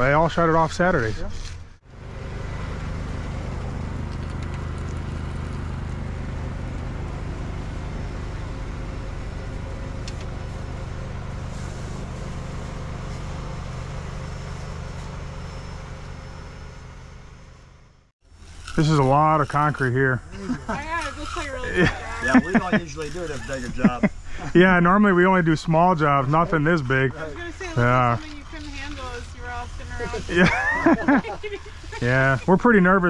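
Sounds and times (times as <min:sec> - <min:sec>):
engine idling: 0:01.8 - 0:33.0.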